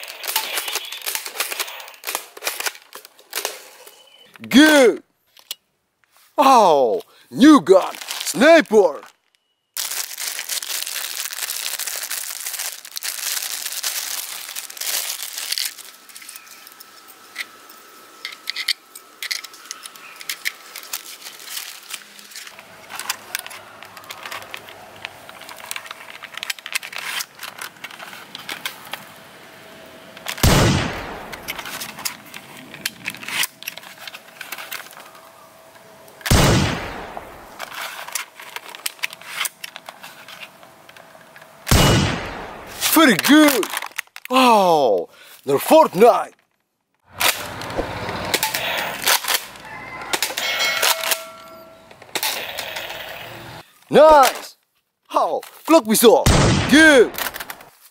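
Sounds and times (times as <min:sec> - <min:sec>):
plastic bag crinkling and tearing: 0:07.8 - 0:17.0, 0:19.3 - 0:29.0, 0:42.7 - 0:44.3.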